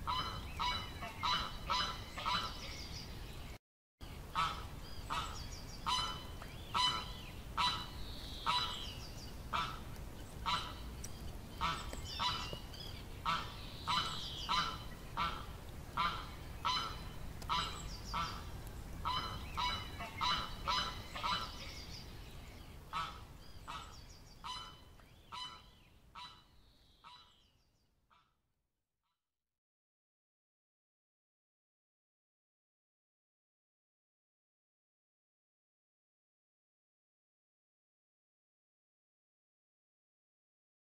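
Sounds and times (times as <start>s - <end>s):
waterfowl honking: 0.0s - 2.8s, 4.3s - 8.9s, 9.5s - 10.9s, 11.6s - 12.6s, 13.2s - 21.8s, 22.9s - 27.4s.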